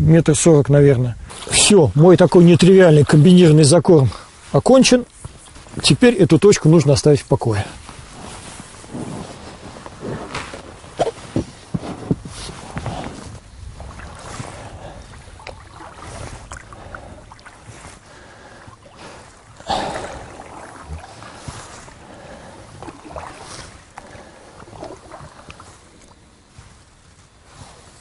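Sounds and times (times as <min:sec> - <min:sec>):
oars splashing in water: 0:07.8 - 0:28.0.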